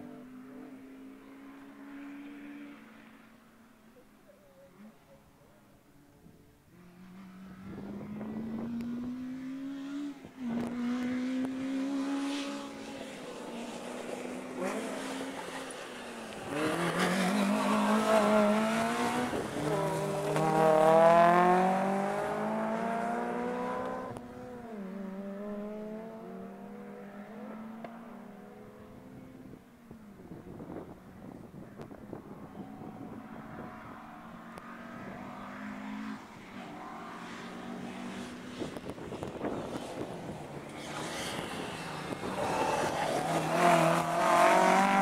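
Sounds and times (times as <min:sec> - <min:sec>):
rally car accelerating past: 0:06.8 - 0:29.5, 0:32.1 - 0:45.0.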